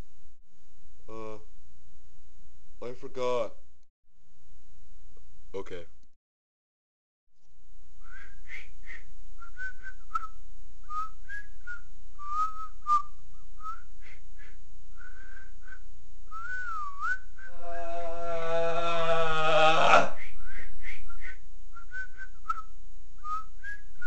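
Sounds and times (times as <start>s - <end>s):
person whistling: 8.0s - 17.6s, 20.1s - 24.0s.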